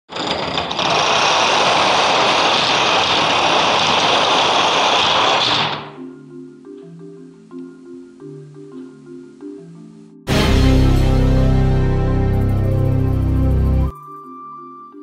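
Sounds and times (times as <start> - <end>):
dominoes toppling clatter: 0.1 - 5.9
marimba music: 6.0 - 15.0.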